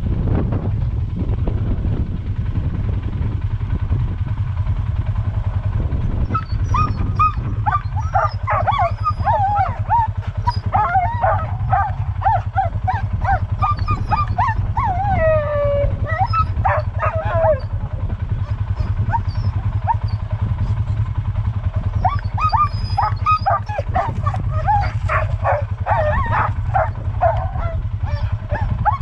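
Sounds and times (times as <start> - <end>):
low rumble: 0.0 - 29.0
sled dogs whining and yipping: 6.2 - 29.0.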